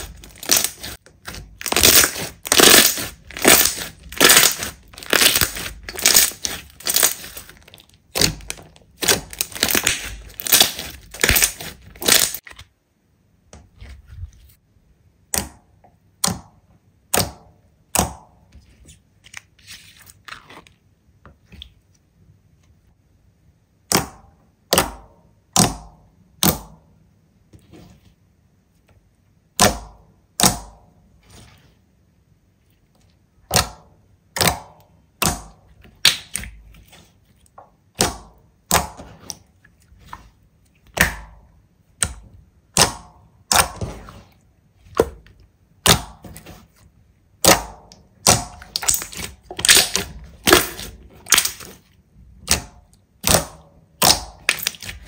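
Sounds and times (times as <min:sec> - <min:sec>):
slime popping and clicking: 0:47.4 - 0:51.7, 0:52.4 - 0:55.0.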